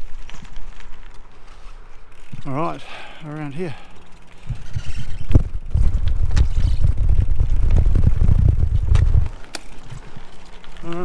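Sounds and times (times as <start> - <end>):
wind buffeting microphone: 4.4 - 10.2.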